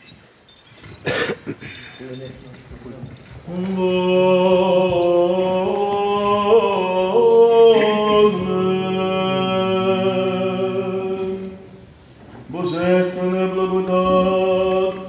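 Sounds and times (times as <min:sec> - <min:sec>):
low voice drone: 0:03.5 - 0:11.8
voices chanting long notes: 0:03.5 - 0:15.0.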